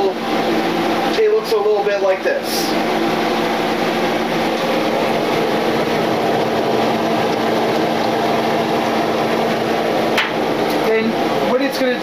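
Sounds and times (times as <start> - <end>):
constant low hum: 0.0 - 11.5
whisking in a pot: 2.6 - 11.8.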